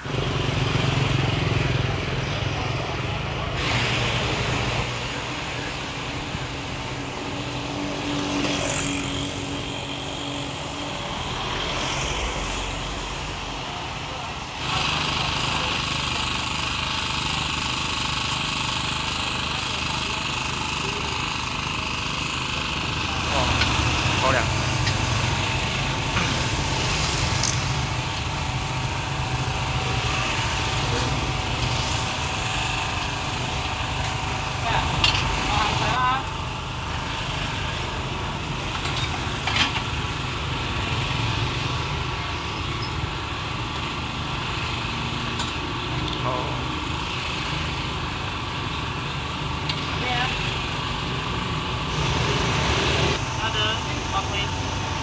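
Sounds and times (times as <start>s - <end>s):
motorcycles passing: 0.0s - 3.5s, 4.1s - 15.7s
cars passing: 0.0s - 15.7s
steady engine hum: 0.0s - 55.0s
street background noise: 0.0s - 55.0s.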